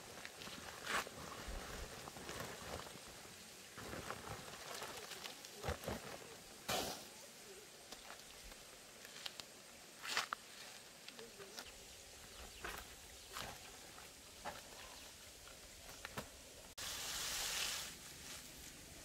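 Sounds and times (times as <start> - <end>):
plastic sack rustling and crinkling: 0.0 - 6.6.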